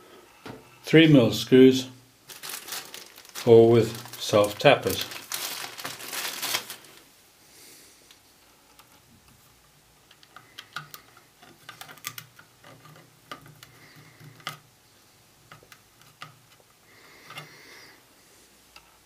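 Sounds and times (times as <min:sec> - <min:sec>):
screws and plastic parts clicking: 0:10.0 - 0:14.7, 0:15.5 - 0:17.5.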